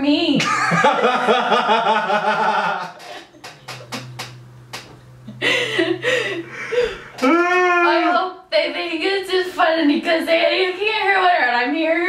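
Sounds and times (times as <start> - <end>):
man and woman laughing: 0.4 - 3.7, 5.3 - 8.1.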